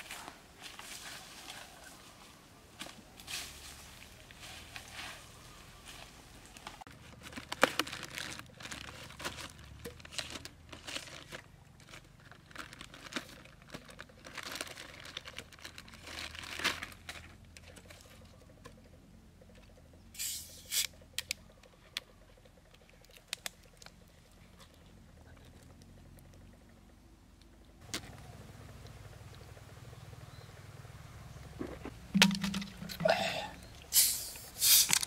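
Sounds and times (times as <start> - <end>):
plastic bag crinkling: 6.9 - 17.5
plastic bottles clicking and knocking: 31.6 - 33.6
short hisses: 33.0 - 34.9.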